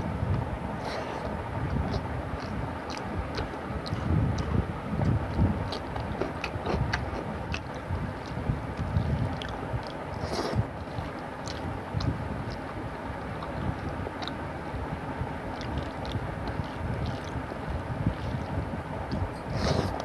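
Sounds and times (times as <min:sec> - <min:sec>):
low rumble: 0:00.0 - 0:20.0
chewing and lip-smacking: 0:00.2 - 0:14.5, 0:15.4 - 0:20.0
crunching cucumber: 0:01.0 - 0:12.6, 0:15.5 - 0:17.4.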